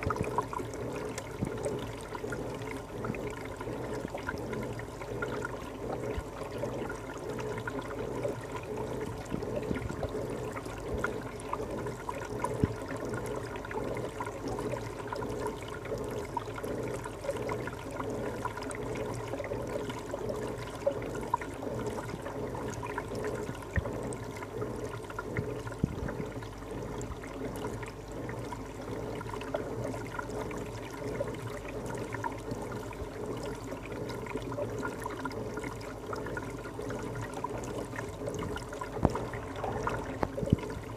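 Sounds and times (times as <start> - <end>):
aquarium water running: 0.0 - 40.9
steady low hum: 0.0 - 40.9.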